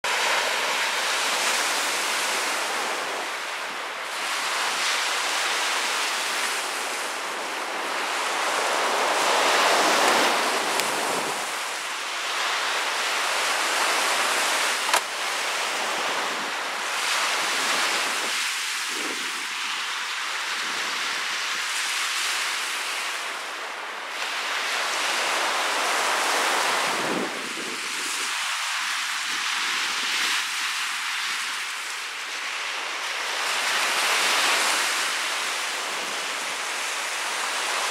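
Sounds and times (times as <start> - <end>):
waves breaking on a beach: 0.0 - 37.9
wind gusting over microphone: 6.1 - 19.6
sharp click: 14.9 - 15.1.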